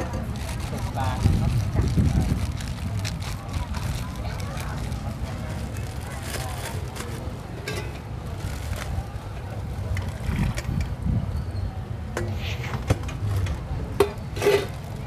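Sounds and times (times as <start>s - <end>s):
faint voices: 0.0s - 15.0s
utensil clinking on metal bowl: 7.6s - 8.0s.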